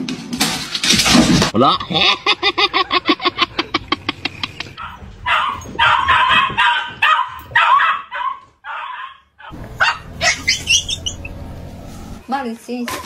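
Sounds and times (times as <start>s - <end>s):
dog yipping: 4.8s - 11.4s.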